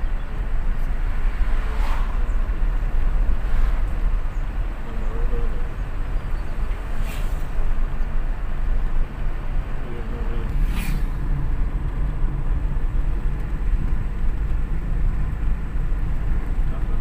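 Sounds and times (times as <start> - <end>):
moving vehicle rumble: 0.0 - 17.0
road and wind noise: 0.0 - 17.0
brief hiss: 7.0 - 7.6, 10.6 - 11.2.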